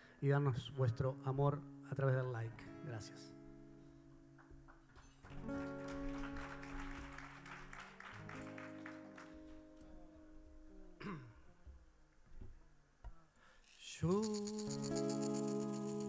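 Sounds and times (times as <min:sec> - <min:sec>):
acoustic guitar strumming: 0:14.0 - 0:16.0.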